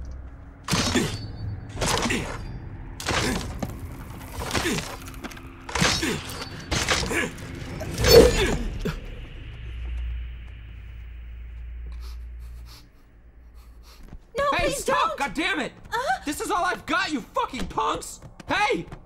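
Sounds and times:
tense music score: 0:00.0 - 0:19.0.

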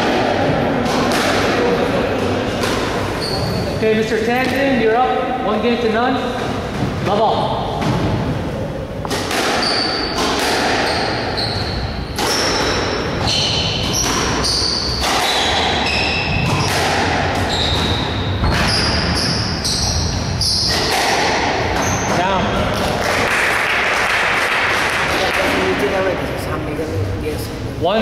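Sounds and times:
squash ball cracks: 0:00.0 - 0:03.0, 0:09.0 - 0:10.9, 0:13.8 - 0:17.5, 0:20.7 - 0:21.8
shoes squeaking on wooden floor: 0:03.1 - 0:03.8, 0:09.6 - 0:10.2, 0:10.8 - 0:16.8, 0:17.4 - 0:20.9, 0:21.7 - 0:22.4.

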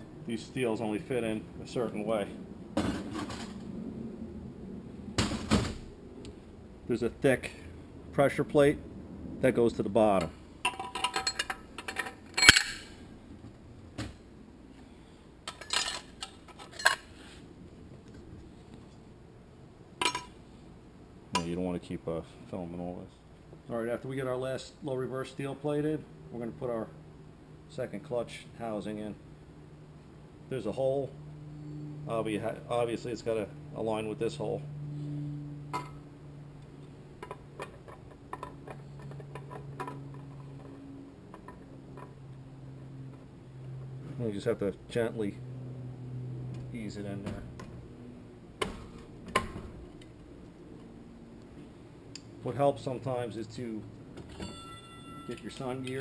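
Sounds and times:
light metallic clicks and clinks: 0:54.3 - 0:56.0.

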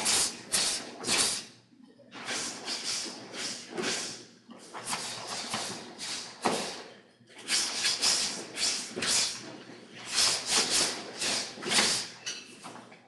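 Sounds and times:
forceful exhaling: 0:02.2 - 0:09.4.

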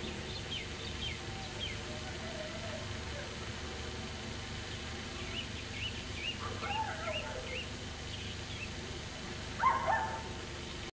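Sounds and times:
puppy yelping: 0:06.4 - 0:07.6, 0:09.6 - 0:10.3.

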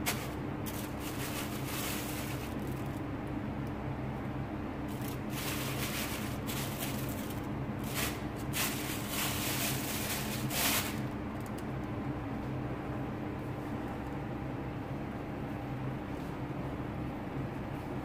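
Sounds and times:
plastic gloves rustling: 0:00.0 - 0:03.0, 0:04.9 - 0:11.2.

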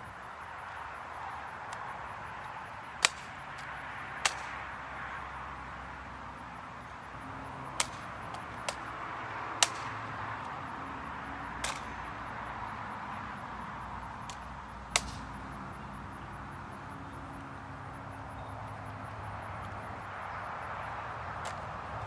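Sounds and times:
hands slapping rifle: 0:07.8 - 0:08.8, 0:15.0 - 0:15.2.

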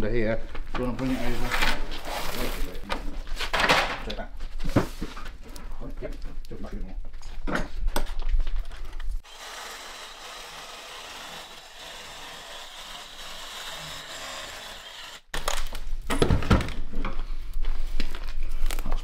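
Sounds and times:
power saw cutting: 0:09.2 - 0:15.3.

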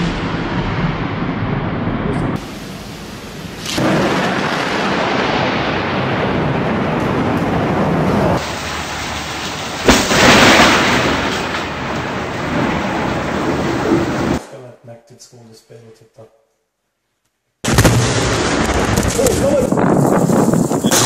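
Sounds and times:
thunder rumble: 0:00.0 - 0:14.4, 0:17.6 - 0:21.0
thunder crack: 0:00.0 - 0:14.5, 0:17.6 - 0:21.0
rain: 0:02.3 - 0:14.4, 0:17.7 - 0:21.0.

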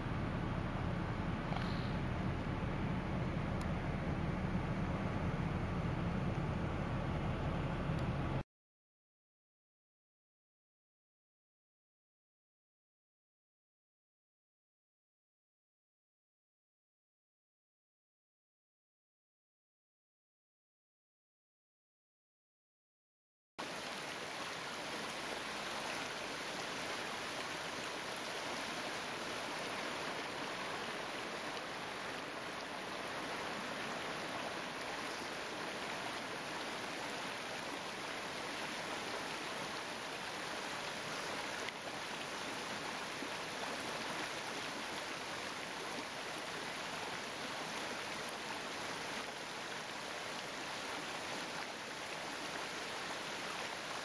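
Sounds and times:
stream running over rocks: 0:23.6 - 0:54.0.

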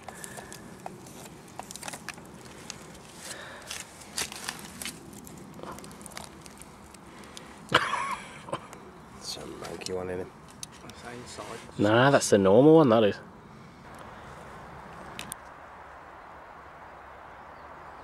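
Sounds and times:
twigs and soil crunching: 0:00.0 - 0:08.0, 0:08.6 - 0:11.9.

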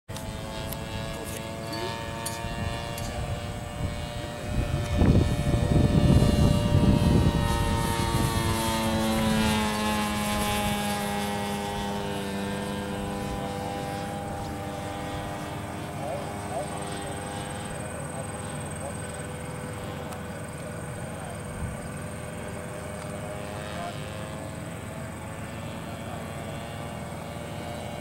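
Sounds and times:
propeller plane engine droning: 0:00.1 - 0:28.0.

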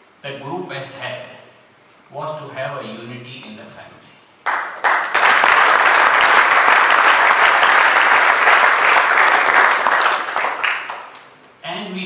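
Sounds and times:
audience applauding: 0:04.4 - 0:11.3.

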